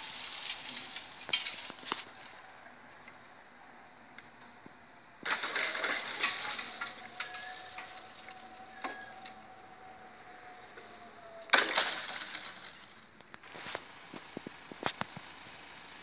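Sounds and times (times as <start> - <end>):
crossing equipment whine: 0.0 - 16.0.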